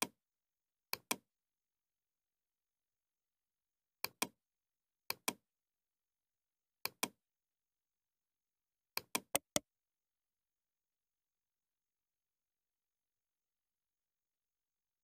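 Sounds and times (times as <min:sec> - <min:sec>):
computer mouse clicking: 0:09.0 - 0:09.6.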